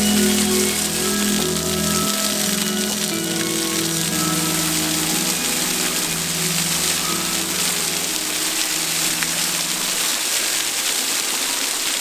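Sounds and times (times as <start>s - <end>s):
soft background music: 0.0s - 10.6s
waterfall splashing: 0.0s - 12.0s.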